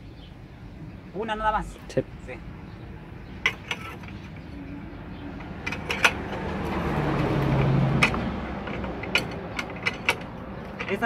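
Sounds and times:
vehicle passing by: 2.2s - 11.0s.

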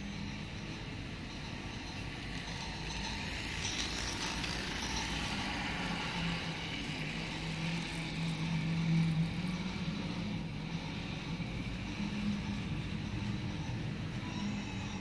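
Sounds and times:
toy train wheels clattering: 0.0s - 10.5s
small electric motor whirring: 1.6s - 8.6s.

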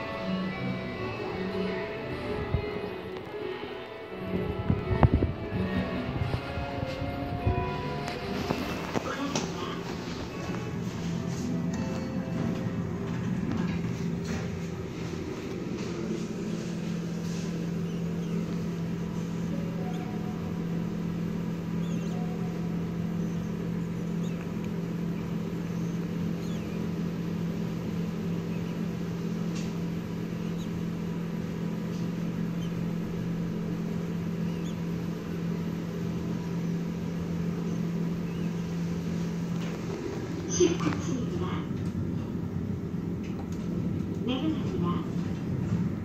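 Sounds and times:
elevator car low hum: 0.0s - 46.0s
faint high squeaks: 16.9s - 24.5s, 25.7s - 26.8s, 34.4s - 34.9s.

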